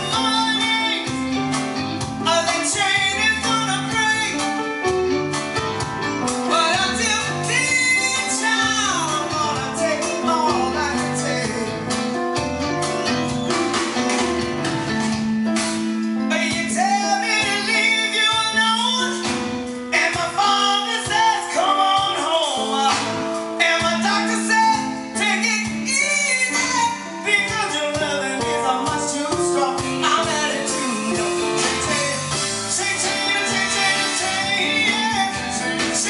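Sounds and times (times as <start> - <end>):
keyboards: 0.0 - 36.0
soul song with lead vocal: 0.0 - 36.0
steady beat: 9.2 - 16.2.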